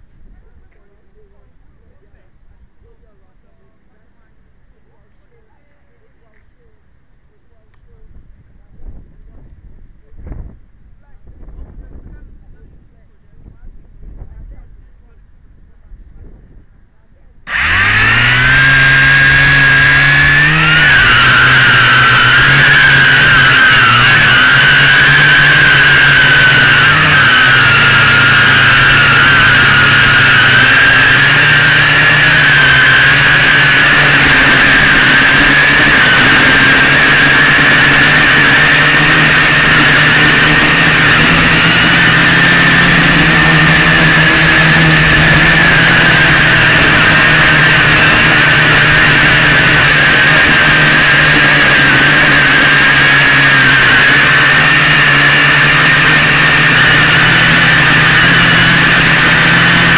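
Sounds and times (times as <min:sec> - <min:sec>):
drone motors whining: 0:17.5 - 0:59.9.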